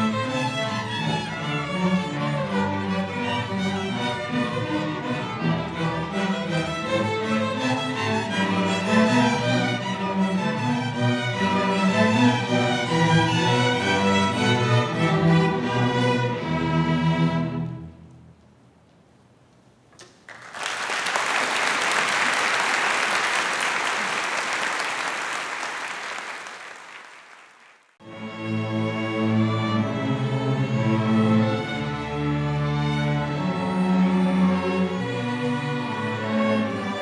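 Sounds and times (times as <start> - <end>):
string orchestra music: 0.0 - 18.2, 28.0 - 37.0
crowd applauding: 20.0 - 28.0.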